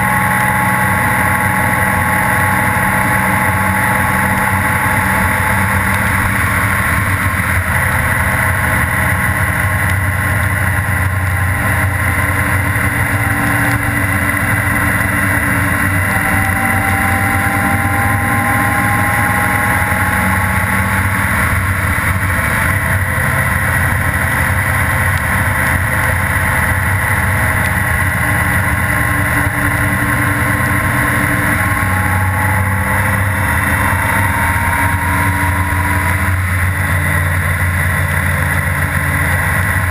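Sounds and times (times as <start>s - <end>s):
faint whine: 0.0s - 39.9s
motorcycle engine running: 0.0s - 39.9s.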